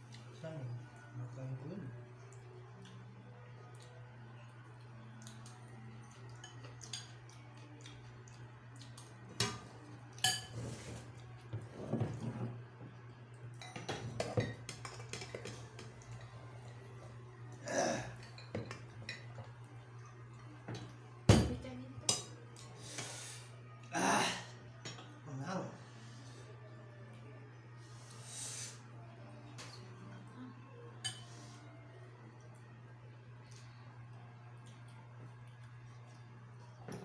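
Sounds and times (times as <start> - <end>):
utensils clinking on dishes: 9.4 - 11.1, 13.5 - 16.4.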